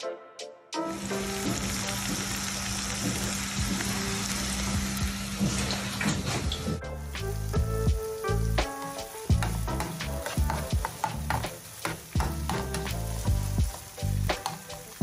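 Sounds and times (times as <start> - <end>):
background music with beat: 0.0 - 5.2, 6.5 - 15.0
vegetables sizzling in frying pan: 0.9 - 6.0, 7.0 - 15.0
spatula stirring in pan: 8.7 - 15.0.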